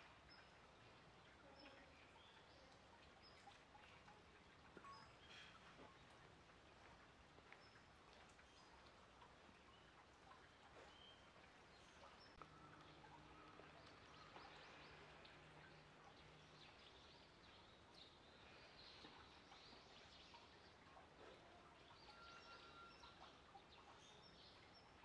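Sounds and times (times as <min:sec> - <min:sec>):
faint bird chirps: 0:04.8 - 0:06.1, 0:09.7 - 0:25.0.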